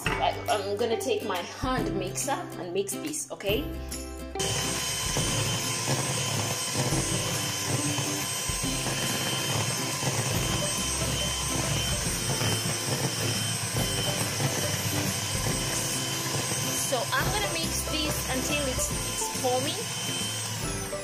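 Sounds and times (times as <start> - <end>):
electric hand mixer whirring: 4.4 - 21.0.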